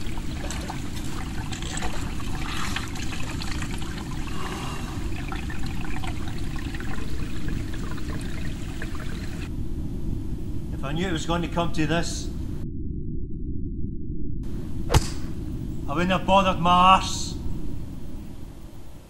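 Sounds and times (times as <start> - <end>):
water trickling and splashing: 0.0 - 9.5
steady low rumble: 9.0 - 19.0.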